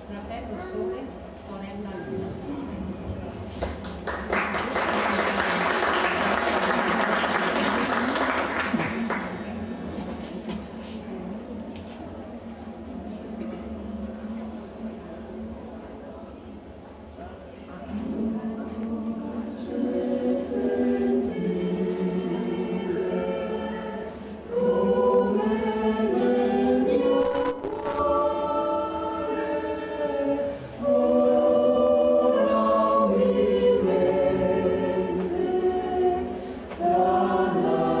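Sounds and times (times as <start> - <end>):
mixed choir singing unaccompanied: 17.9 - 38.0.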